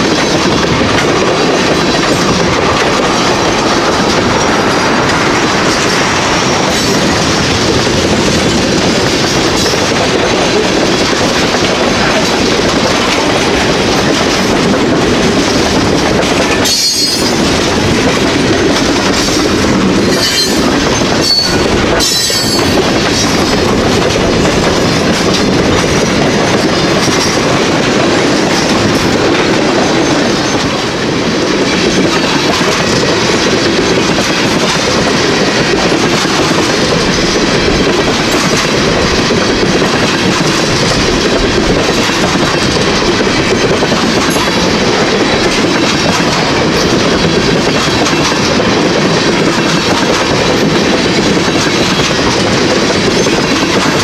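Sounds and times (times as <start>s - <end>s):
freight train wheels rumbling on rail: 0.0s - 54.0s
train cars clanking: 0.0s - 54.0s
high wheel squeal: 20.0s - 22.8s.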